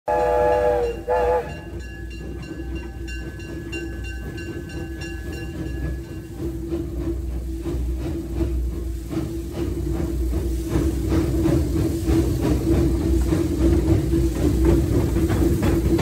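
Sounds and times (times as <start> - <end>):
steam locomotive whistle: 0.1 - 1.9
steam locomotive rhythmic beat: 0.1 - 16.0.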